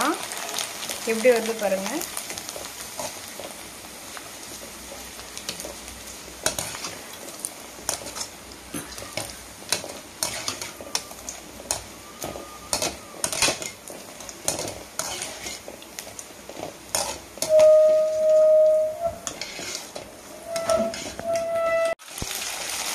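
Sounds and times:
food deep-frying in hot oil: 0.0s - 22.9s
metal spoon clinking on pan: 11.7s - 13.7s.

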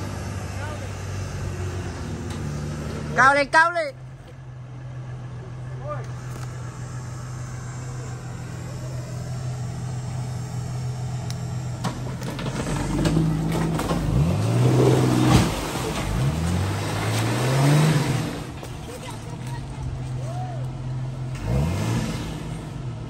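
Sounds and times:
car engine revving: 4.8s - 18.8s, 20.8s - 23.0s.

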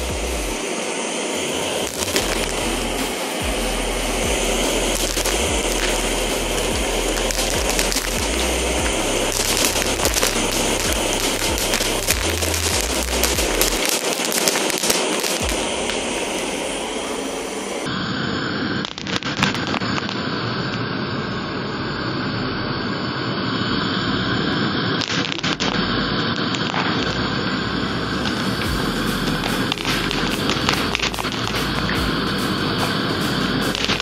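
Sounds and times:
gas torch hissing: 0.0s - 34.0s
popcorn kernels popping: 1.8s - 16.9s, 18.8s - 20.2s, 25.0s - 27.5s, 28.2s - 34.0s.

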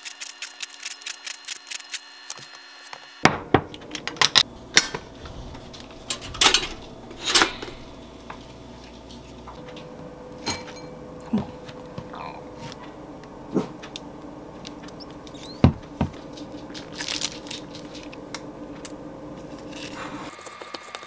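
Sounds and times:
dishes and utensils clinking: 6.0s - 7.9s, 10.4s - 11.0s.

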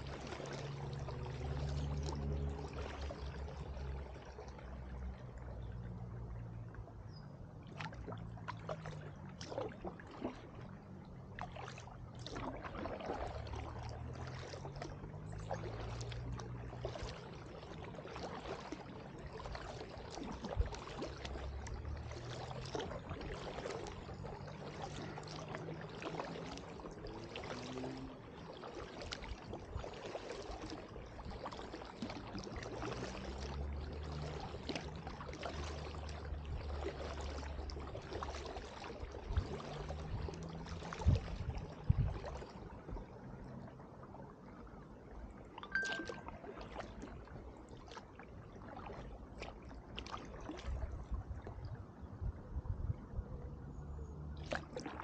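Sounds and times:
paddle splashing in water: 0.0s - 52.2s, 53.5s - 55.0s
water dripping: 45.6s - 46.4s.

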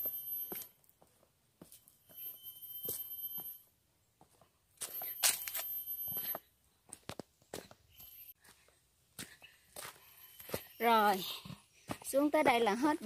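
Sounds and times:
light footsteps on steps: 6.1s - 12.8s.

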